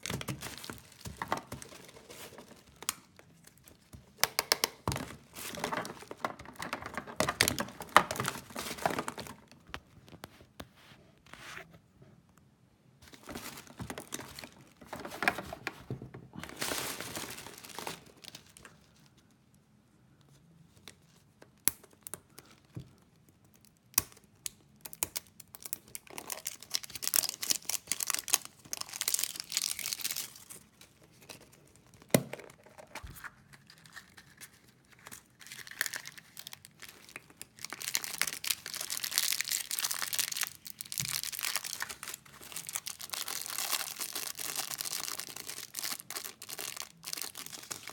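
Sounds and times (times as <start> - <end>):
wrapper crinkling and tearing: 0.0 - 9.7, 13.0 - 15.8, 16.4 - 19.1, 24.8 - 47.9.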